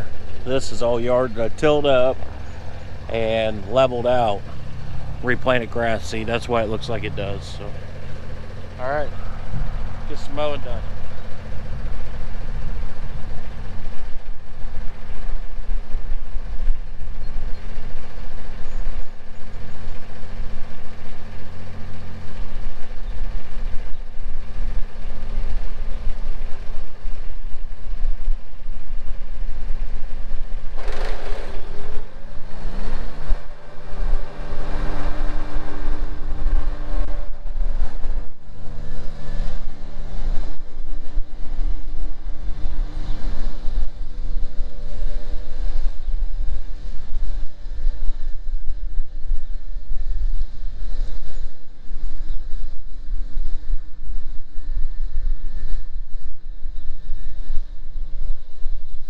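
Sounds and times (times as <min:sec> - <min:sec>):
lawn mower engine running: 0:00.0 - 0:16.7, 0:30.0 - 0:45.3.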